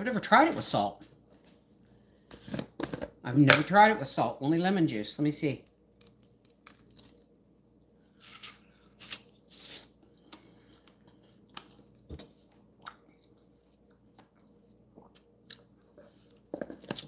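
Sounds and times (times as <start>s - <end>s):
person chewing watermelon: 8.8s - 17.0s.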